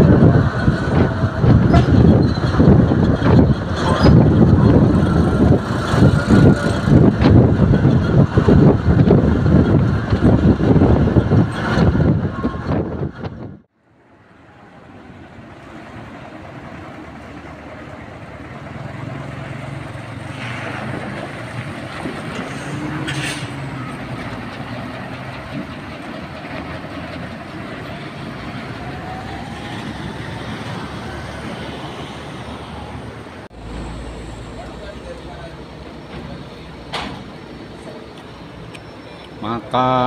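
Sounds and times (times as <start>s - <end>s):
traffic engines humming: 0.0s - 40.0s.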